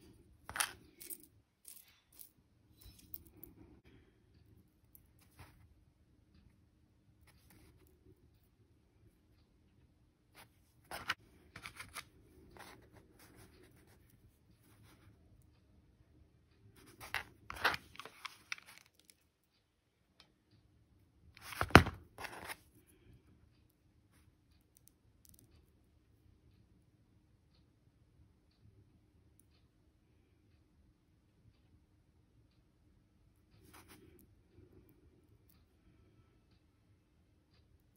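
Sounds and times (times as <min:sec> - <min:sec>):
shells clicking and scraping: 0:00.0 - 0:03.7.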